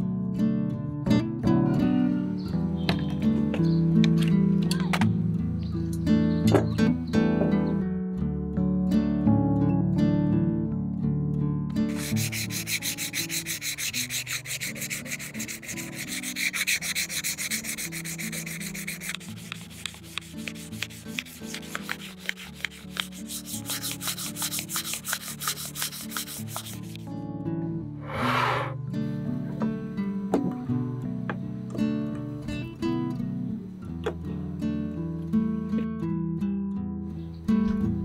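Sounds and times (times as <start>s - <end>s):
sandpaper rubbing: 11.9s - 27.1s, 28.0s - 28.8s.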